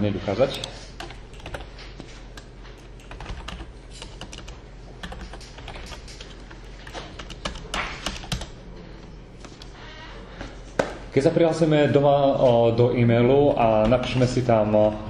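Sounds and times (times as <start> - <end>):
keyboard keys clicking: 0.5 - 8.6.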